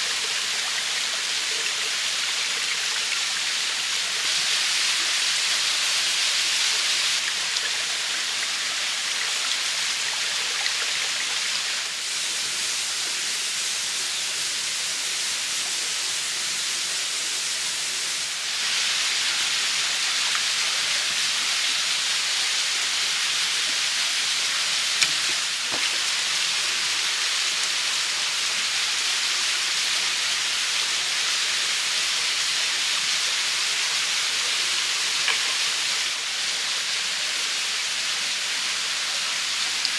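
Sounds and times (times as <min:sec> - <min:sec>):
stream running over rocks: 0:17.6 - 0:39.9.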